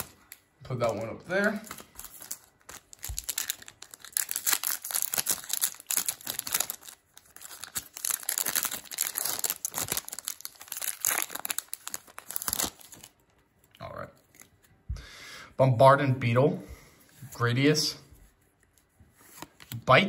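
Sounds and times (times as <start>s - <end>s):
foil wrapper tearing and crinkling: 1.6s - 13.2s.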